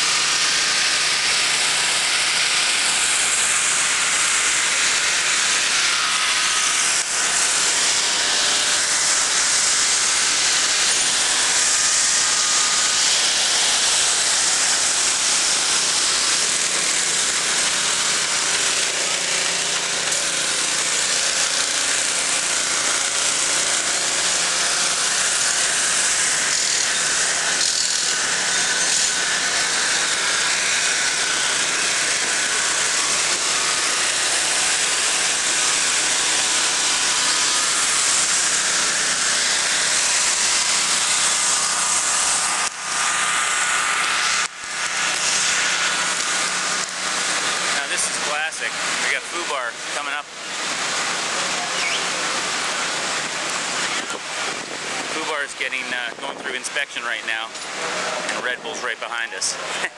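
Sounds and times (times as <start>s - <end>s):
portable generators running: 0.0s - 59.9s.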